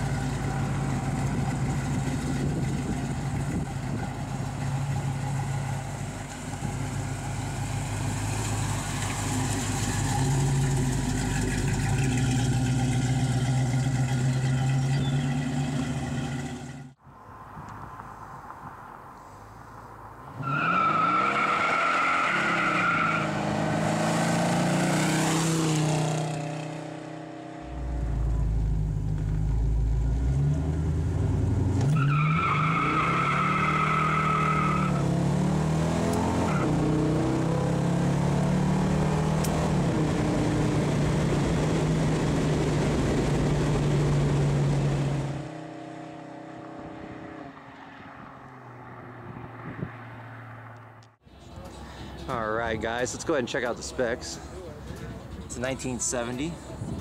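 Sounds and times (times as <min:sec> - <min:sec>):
car engine accelerating: 0:00.0 - 0:17.0, 0:20.4 - 0:52.3
tires squealing: 0:20.2 - 0:25.4, 0:31.8 - 0:35.3.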